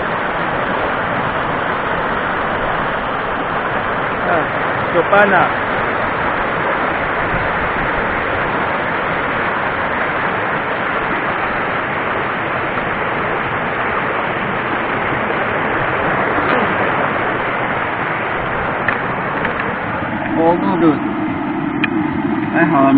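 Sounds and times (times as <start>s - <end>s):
water rushing over boulders: 0.0s - 22.9s.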